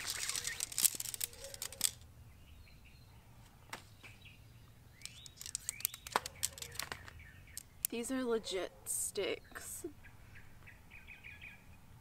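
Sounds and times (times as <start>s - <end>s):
tent pole sections clicking: 0.0s - 2.0s, 5.0s - 8.0s.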